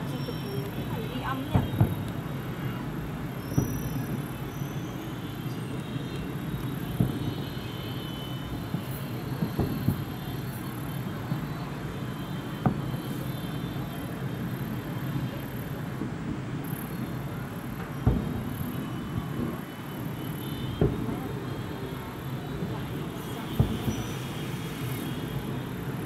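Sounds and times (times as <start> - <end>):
fireworks bursting and crackling: 0.0 - 26.0
sharp firework bangs: 0.1 - 5.5, 6.2 - 26.0.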